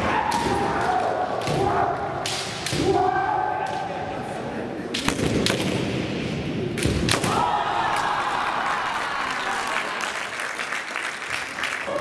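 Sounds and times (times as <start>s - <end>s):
long falling shout: 7.2s - 10.0s.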